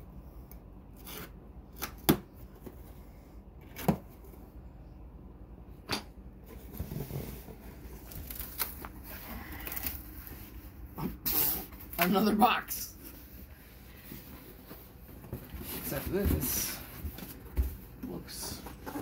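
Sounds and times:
cardboard flaps scraping and rustling: 14.1s - 19.0s.

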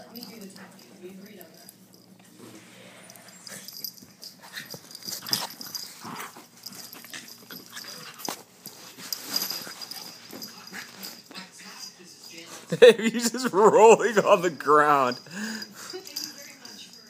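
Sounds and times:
dogs scuffling: 3.4s - 12.7s.

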